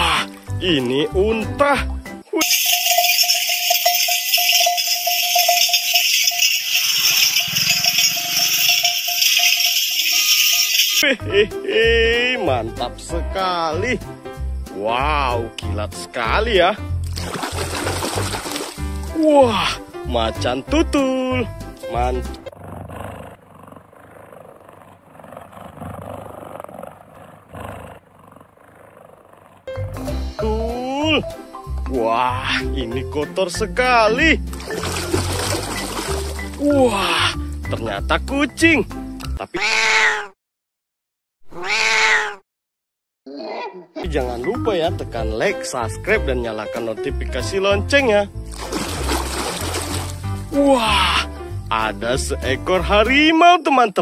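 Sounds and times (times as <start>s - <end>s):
ringing bell tone: 2.4s - 11.0s
camel bells and rattles jingling: 2.4s - 11.2s, 34.6s - 36.7s
big cat growling: 22.4s - 29.7s.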